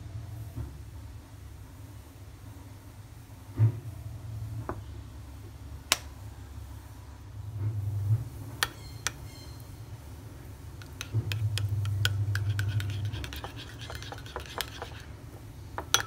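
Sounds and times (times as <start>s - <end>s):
metal spoon clinking in ceramic bowl: 10.8s - 15.1s, 15.8s - 16.0s.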